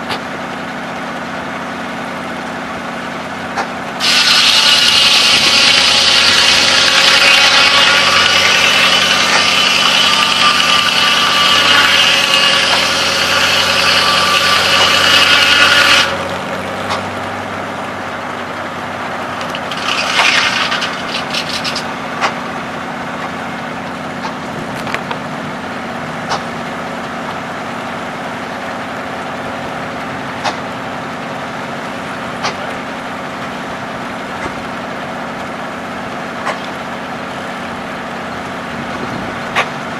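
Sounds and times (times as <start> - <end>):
engine running: 0.0 - 39.9
circular saw blade cutting log: 2.1 - 33.6, 34.4 - 39.9
wood clattering: 19.3 - 22.4.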